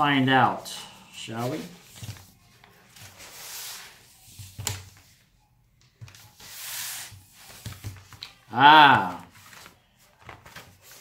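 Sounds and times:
stiff paper rustling and sliding: 0:01.4 - 0:04.8, 0:09.0 - 0:11.0.

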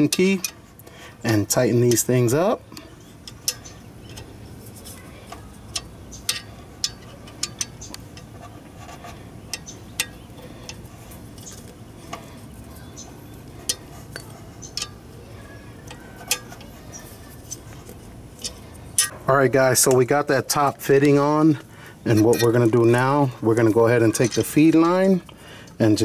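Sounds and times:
allen key clinking on bolts: 0:18.4 - 0:19.1.

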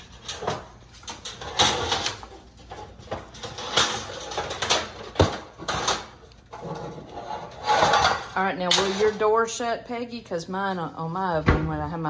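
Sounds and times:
metal baking pans clattering: 0:00.0 - 0:09.5.

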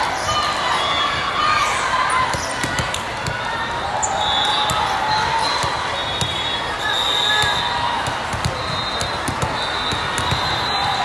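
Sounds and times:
crowd chatter: 0:00.0 - 0:11.0
volleyballs hit and bouncing: 0:01.6 - 0:11.0.

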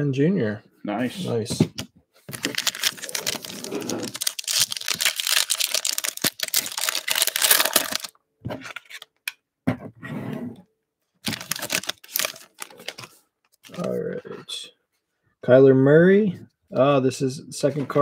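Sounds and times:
foil wrapper crinkling and tearing: 0:02.3 - 0:08.2, 0:11.2 - 0:13.1.

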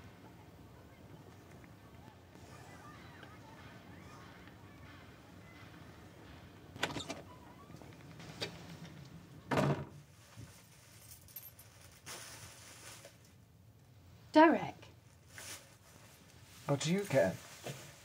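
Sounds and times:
door bumping shut: 0:06.8 - 0:07.3, 0:09.5 - 0:09.9
plastic bags rustling: 0:10.0 - 0:13.4, 0:15.2 - 0:18.0.

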